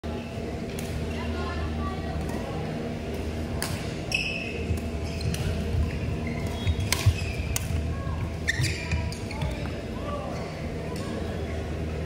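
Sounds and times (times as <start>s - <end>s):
steady low hum: 0.0s - 12.0s
shoes squeaking on court: 4.1s - 10.6s
racket hitting shuttlecock: 6.8s - 7.8s.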